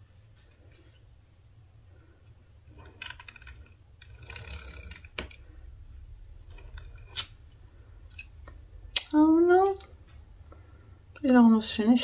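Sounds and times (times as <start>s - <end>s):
tape pen rasping roll: 2.7s - 5.5s.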